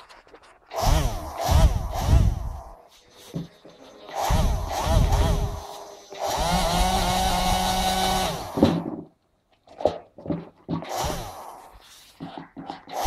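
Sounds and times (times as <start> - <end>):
small electric motors whirring: 0.7 - 3.2, 3.9 - 8.6, 10.9 - 12.0.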